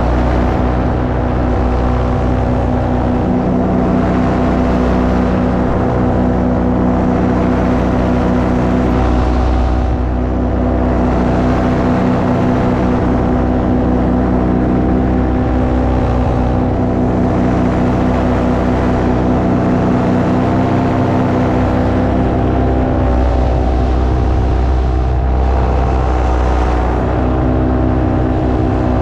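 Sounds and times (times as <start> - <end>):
paramotor engine and propeller: 0.0 - 29.0.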